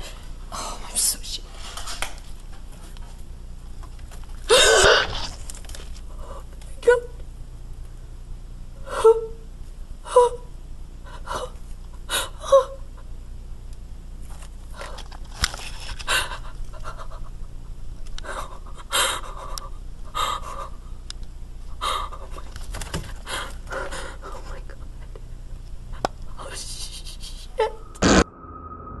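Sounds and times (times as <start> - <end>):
person panting and gasping: 18.2 - 20.8, 23.2 - 24.4.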